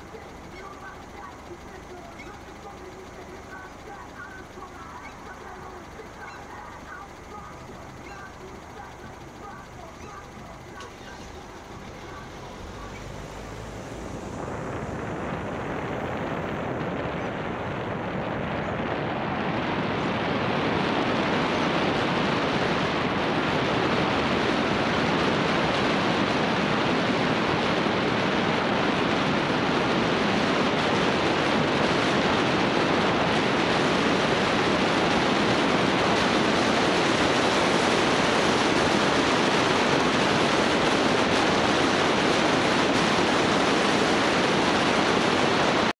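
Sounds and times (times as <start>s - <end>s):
road noise: 0.0s - 17.9s
rushing wind: 9.1s - 45.9s.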